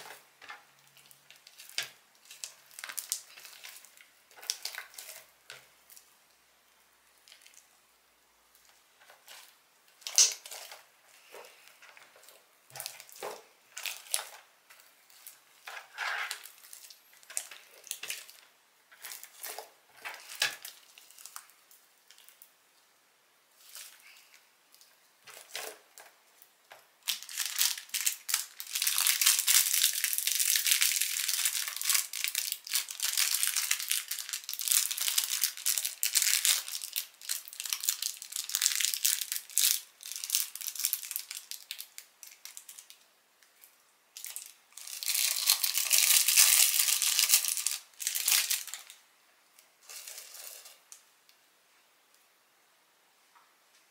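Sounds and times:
slime crackling and popping: 0.0s - 6.3s, 7.1s - 7.8s, 8.5s - 22.5s, 27.0s - 43.0s, 44.2s - 49.0s.

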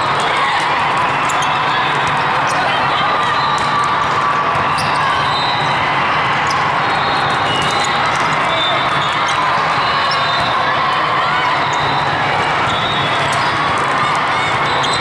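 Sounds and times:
crowd voices: 0.0s - 15.0s
volleyballs bouncing and struck: 3.5s - 5.7s, 6.4s - 9.7s.

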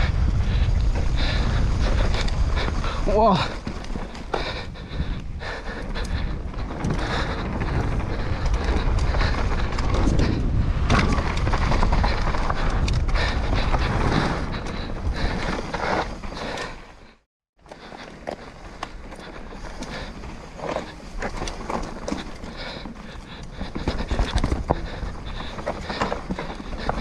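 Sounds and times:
wind rumbling on microphone: 0.0s - 17.1s
bike rattling over bumps: 0.0s - 27.0s.

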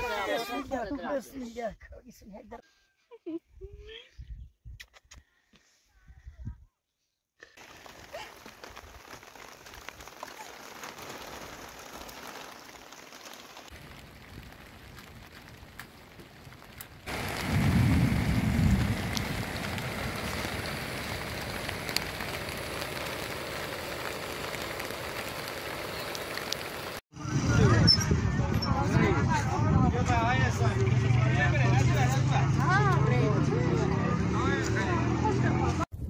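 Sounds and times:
rain on plastic sheeting: 7.4s - 27.0s.

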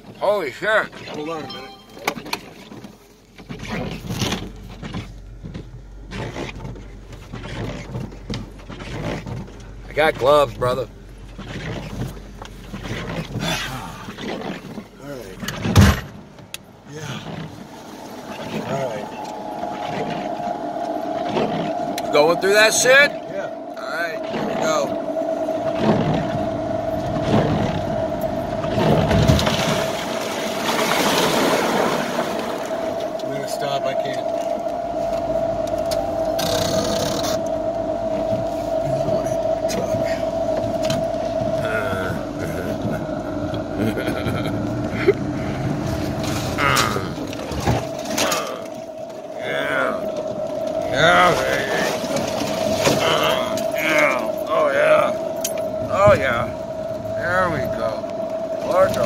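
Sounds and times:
steady low hum: 3.0s - 59.0s
snow scraping against vehicle: 6.1s - 15.8s, 50.8s - 55.1s.

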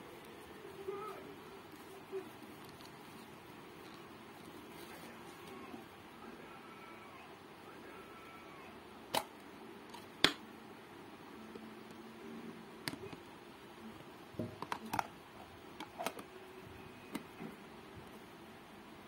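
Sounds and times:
plastic containers clicking and knocking: 14.4s - 15.1s.

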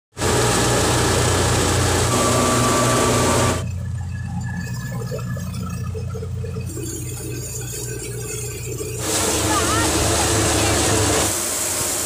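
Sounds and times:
threshing machine rushing noise: 0.2s - 3.8s, 9.0s - 12.0s
low tractor engine hum: 0.2s - 12.0s.

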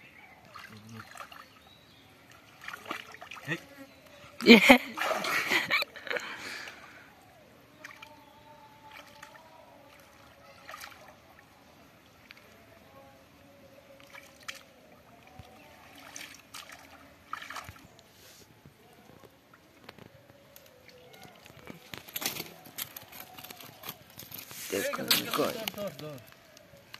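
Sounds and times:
hands splashing in muddy water: 2.4s - 3.5s, 4.9s - 5.5s, 15.4s - 18.0s.

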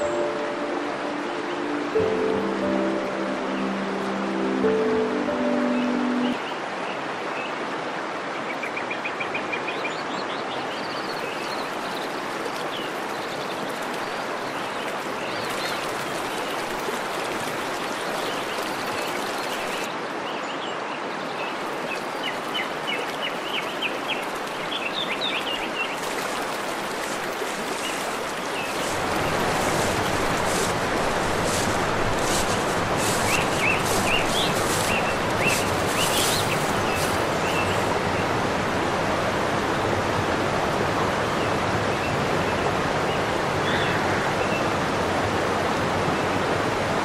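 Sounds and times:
stream rushing: 0.0s - 47.0s
birds chirping: 18.3s - 38.4s.

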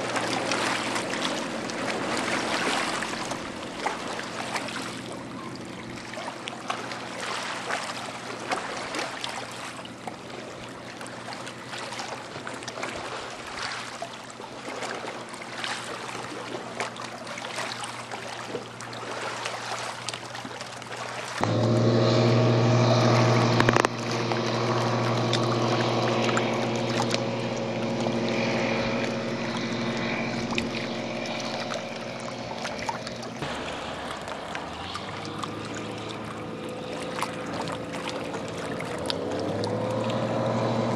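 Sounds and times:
propeller plane drone flying past: 0.0s - 7.4s, 21.4s - 40.9s.

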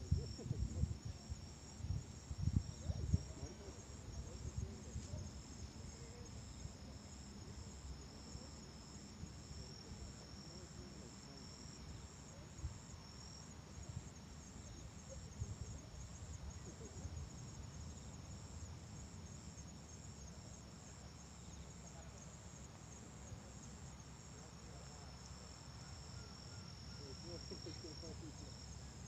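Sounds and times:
crickets trilling: 0.0s - 29.0s.

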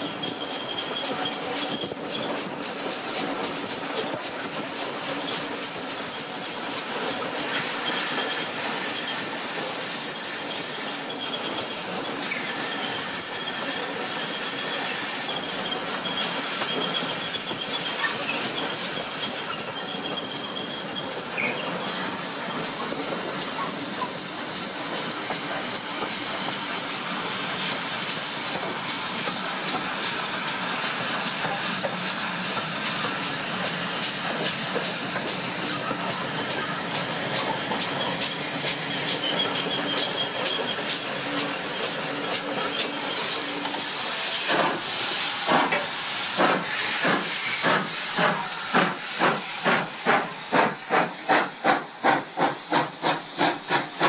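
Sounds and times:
faint high squeal: 0.0s - 2.3s, 10.9s - 22.0s
steam hiss: 0.0s - 54.0s.

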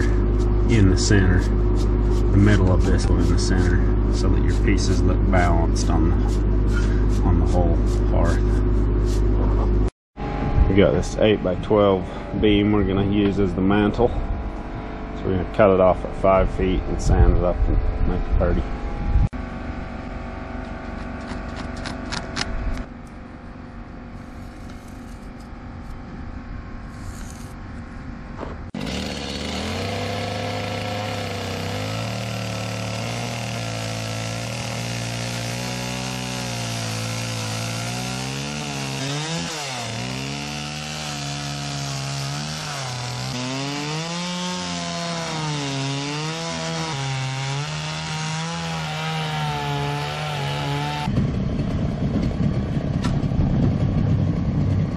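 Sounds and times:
chainsaw cutting wood: 0.0s - 9.8s, 20.6s - 22.9s, 28.8s - 51.2s.

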